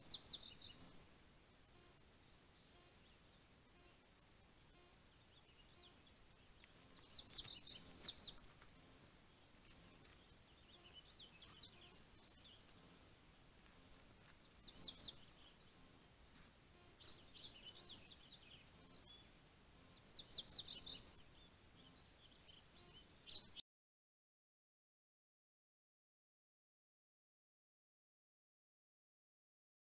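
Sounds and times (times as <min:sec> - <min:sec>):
songbird chirping: 0:00.0 - 0:23.6
steady low hiss: 0:00.0 - 0:23.6.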